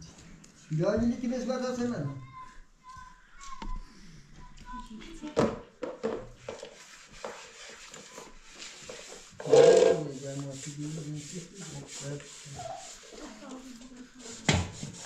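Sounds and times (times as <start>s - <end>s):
scrubbing clothes by hand: 6.5s - 15.0s.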